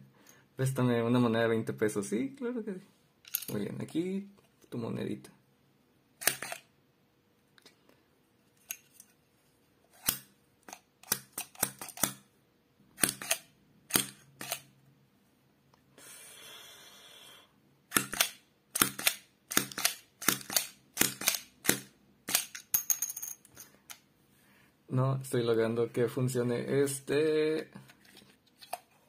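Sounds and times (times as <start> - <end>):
steady hiss: 15.9 - 17.6.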